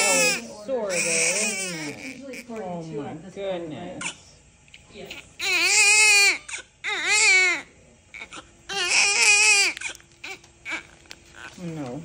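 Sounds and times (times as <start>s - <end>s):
newborn baby crying: 0.0s - 2.6s, 5.0s - 11.6s.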